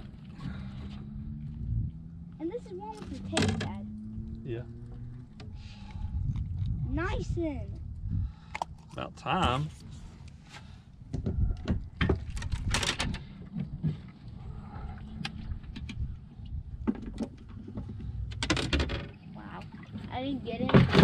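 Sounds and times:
low rumble: 0.0 - 2.9, 3.5 - 18.4.

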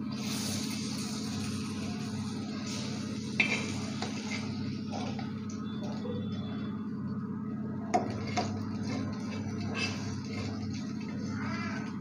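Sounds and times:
steady low hum: 0.0 - 12.0
metal spatula scraping griddle: 2.7 - 5.2, 8.0 - 11.8.

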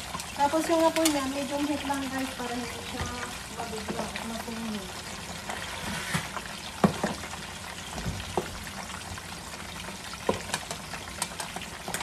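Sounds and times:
meat sizzling in hot oil: 0.0 - 12.0
oil popping: 2.8 - 12.0.

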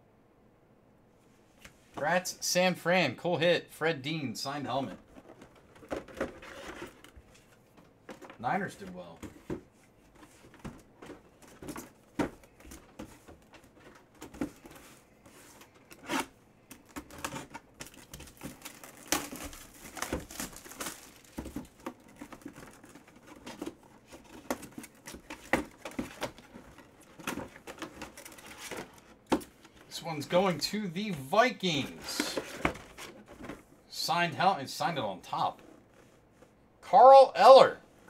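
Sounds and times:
plastic wrap crinkling and tearing: 16.9 - 23.0.

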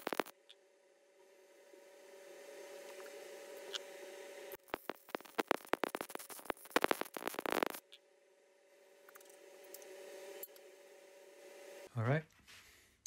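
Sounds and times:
welder arc crackling: 0.0 - 0.5, 2.8 - 8.0
steady hum: 0.0 - 12.0.

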